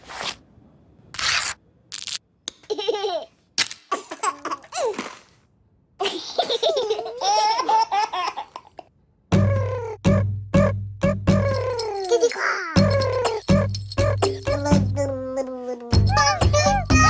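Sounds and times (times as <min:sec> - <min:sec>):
babies laughing and squealing: 0:11.4 - 0:17.0.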